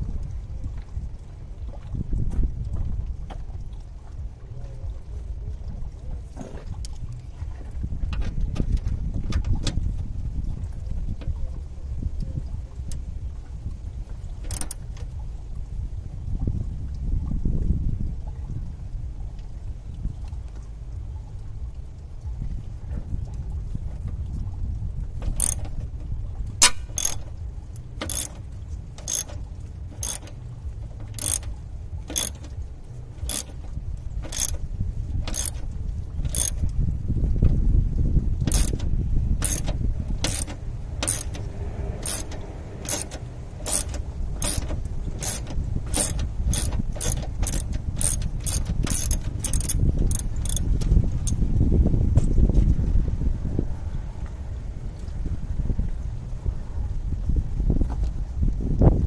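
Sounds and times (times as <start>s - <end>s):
low background rumble: 0.0s - 59.0s
ratchet wrench clicking: 14.5s - 14.8s, 25.4s - 25.7s, 26.6s - 27.3s, 28.0s - 28.4s, 29.0s - 30.4s, 31.2s - 31.5s, 32.1s - 32.5s, 33.3s - 33.6s, 34.2s - 34.6s, 35.2s - 35.6s, 36.3s - 36.6s, 38.5s - 38.8s, 39.4s - 51.4s.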